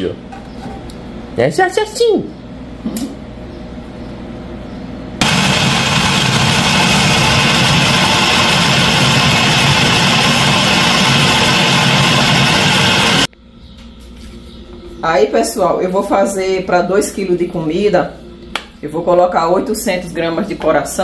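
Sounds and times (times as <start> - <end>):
food processor grinding meat: 5.2 - 13.3.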